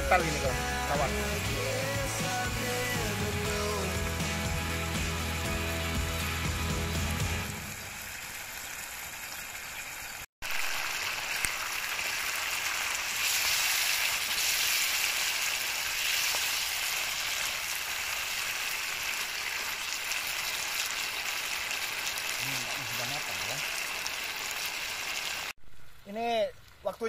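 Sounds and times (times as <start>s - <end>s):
sauce sizzling in a frying pan: 6.9s - 25.6s.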